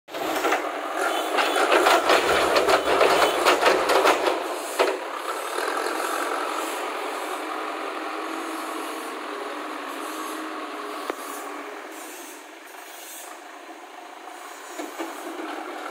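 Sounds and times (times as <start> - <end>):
diesel engine under load: 0.1 - 15.9
debris clattering and knocking: 1.4 - 5.0.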